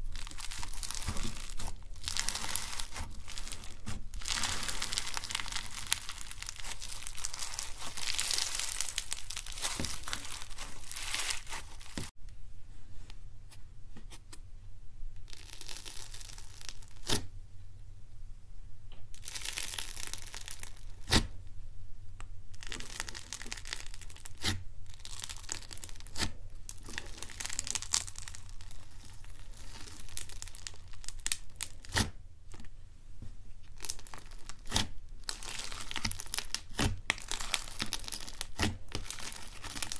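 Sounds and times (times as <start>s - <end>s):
slime crackling: 0.0s - 12.2s, 15.2s - 17.2s, 19.2s - 21.3s, 22.5s - 32.1s, 33.7s - 39.9s
slime squishing: 0.0s - 12.2s, 15.2s - 17.3s, 19.2s - 21.4s, 22.5s - 32.7s, 33.6s - 39.9s
sharp slime pops: 36.0s - 39.1s.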